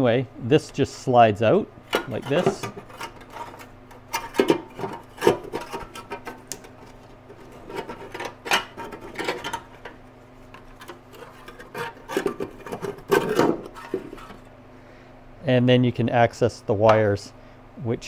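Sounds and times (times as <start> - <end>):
sheet metal scraping and clattering: 7.3 - 10.0.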